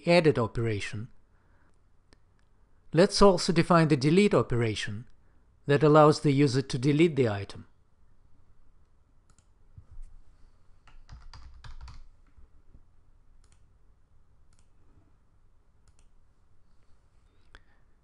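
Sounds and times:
computer mouse clicks: 9.2s - 9.6s, 13.4s - 13.7s, 14.5s - 14.8s, 15.8s - 16.2s
computer keyboard typing: 10.8s - 12.1s.

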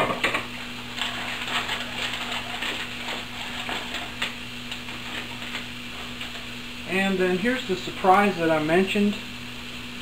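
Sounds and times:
low steady hum: 0.0s - 10.0s
food sizzling on electric grill: 2.8s - 9.8s.

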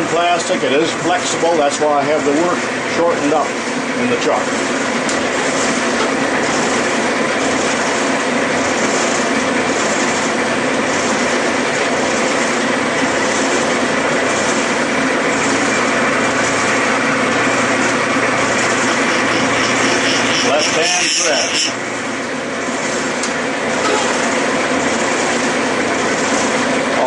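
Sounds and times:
metal lathe cutting thread: 10.8s - 21.8s
rhythmic clatter: 17.6s - 21.8s.

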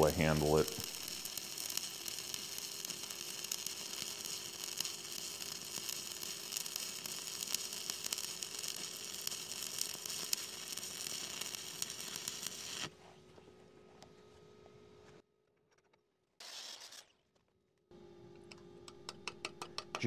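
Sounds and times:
welding arc crackling sizzle: 0.0s - 13.0s.

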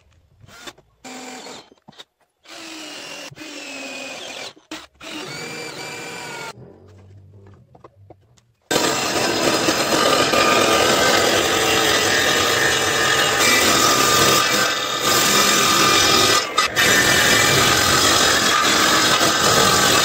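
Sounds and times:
table saw cutting wood: 8.7s - 20.0s.

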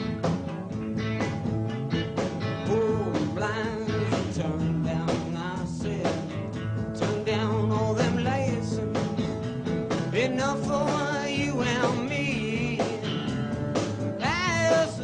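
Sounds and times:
rock band playing: 0.0s - 15.0s
person singing: 2.6s - 8.9s, 10.1s - 13.1s, 14.2s - 15.0s.

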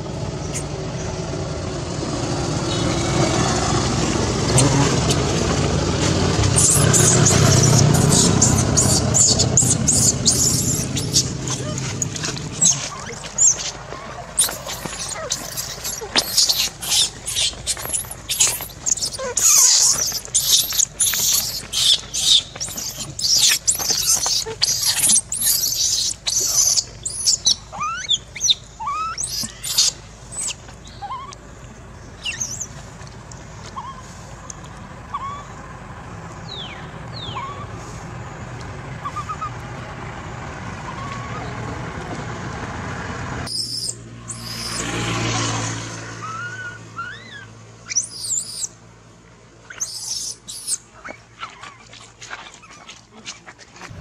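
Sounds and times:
lower steady animal call: 2.5s - 42.0s, 43.4s - 45.0s, 46.0s - 48.9s, 49.6s - 53.3s
short rising squeaks: 2.6s - 31.4s
high animal chirps: 6.4s - 31.4s, 32.2s - 32.8s, 35.1s - 35.5s, 43.5s - 45.0s, 46.2s - 48.8s, 49.6s - 51.9s.

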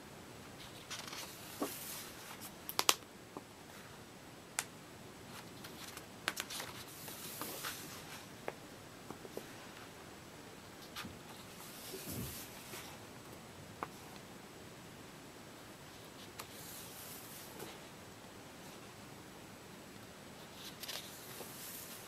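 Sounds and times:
paper pages rustling: 0.6s - 2.9s, 5.3s - 8.3s, 20.5s - 22.0s
paper snaps: 2.7s - 3.0s.

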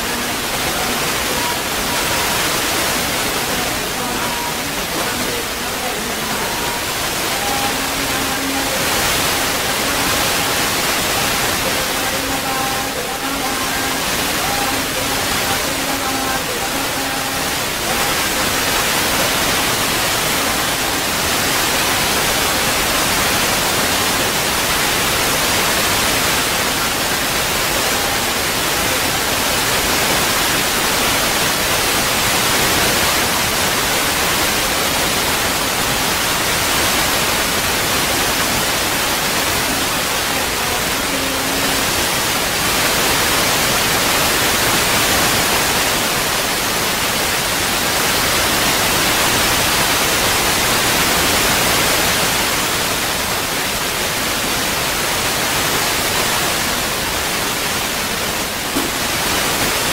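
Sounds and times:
loud static hiss: 0.0s - 59.9s.

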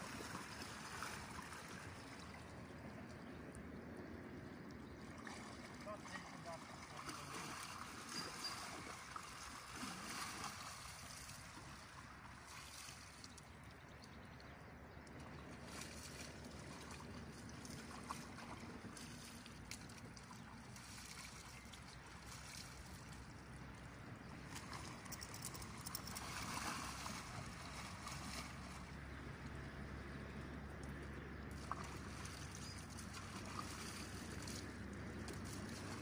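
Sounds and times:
horse splashing through water: 0.0s - 3.1s, 4.8s - 36.0s
stream rushing: 5.0s - 13.1s, 24.5s - 29.0s.

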